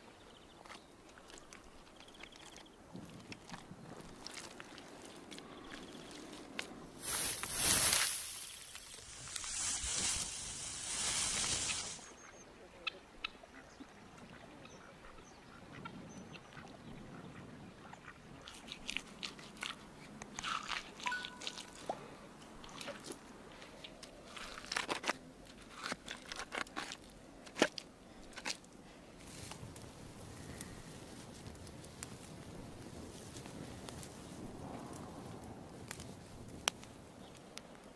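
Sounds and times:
straw rustling against microphone: 0:00.6 - 0:12.1, 0:18.4 - 0:34.4
hand tool scraping packed earth: 0:06.6 - 0:12.0, 0:22.7 - 0:29.8.

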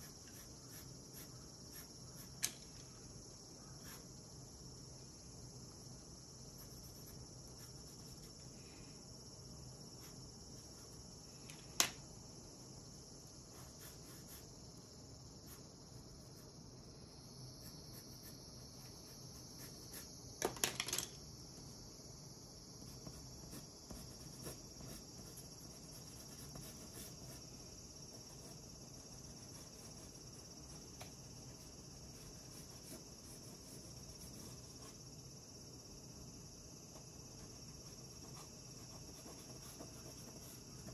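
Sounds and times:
wooden pencils clicking together: 0:20.4 - 0:21.2.

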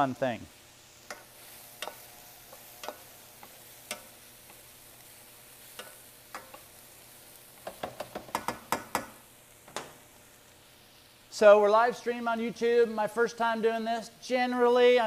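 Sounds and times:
vegetables sizzling in oil: 0:00.0 - 0:15.0
wooden spatula knocking pan: 0:07.6 - 0:09.2.

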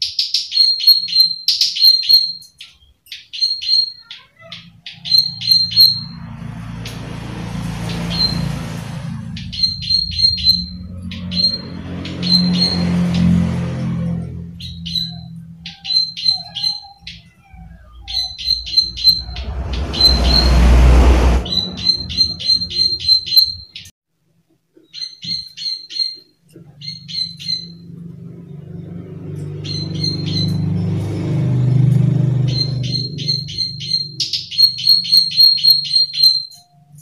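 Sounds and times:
burst of rushing noise: 0:18.4 - 0:23.2.

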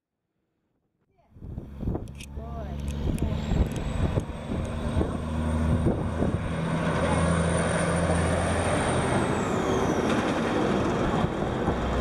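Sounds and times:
outdoor noise: 0:00.0 - 0:12.0
engine droning: 0:01.2 - 0:12.0.

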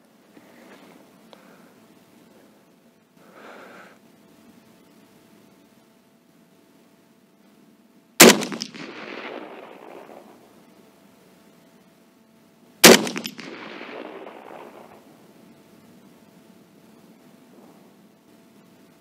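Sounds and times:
gunshots with echo: 0:08.2 - 0:10.5, 0:12.8 - 0:15.1.

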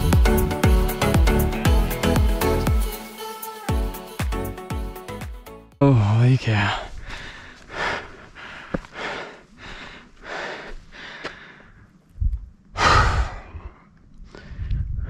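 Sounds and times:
person breathing heavily: 0:06.5 - 0:12.0, 0:12.7 - 0:15.0
wind buffeting microphone: 0:14.4 - 0:15.0.

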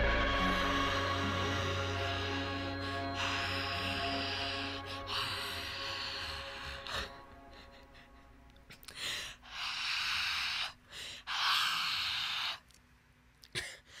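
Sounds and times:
song: 0:00.0 - 0:08.1
heavy noisy breathing: 0:00.0 - 0:12.6.

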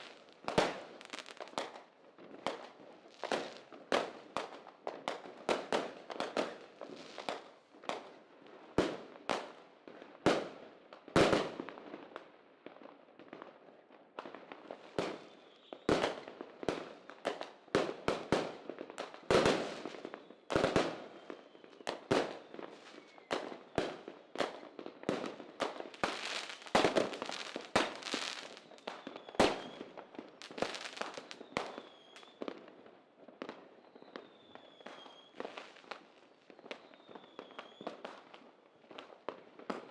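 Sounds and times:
fireworks bangs and crackles: 0:00.0 - 0:39.9
fireworks whistling: 0:21.1 - 0:23.8, 0:25.9 - 0:32.4, 0:33.8 - 0:38.0.

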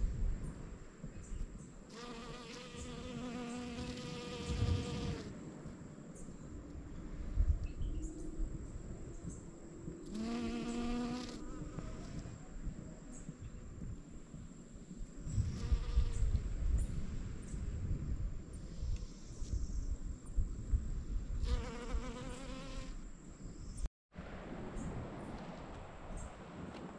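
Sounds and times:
bee buzzing: 0:01.9 - 0:05.3, 0:10.1 - 0:12.2, 0:21.4 - 0:23.0.

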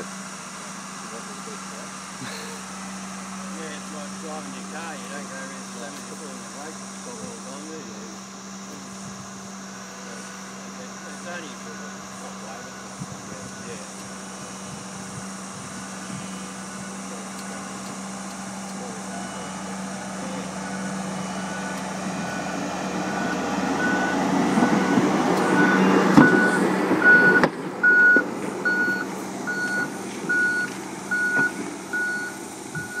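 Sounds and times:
dumper engine hum: 0:00.0 - 0:33.0
travel alarm beeping: 0:14.6 - 0:33.0.

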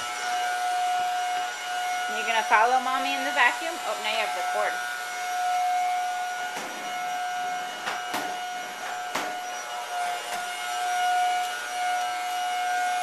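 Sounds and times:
vacuum cleaner motor whining: 0:00.0 - 0:13.0.

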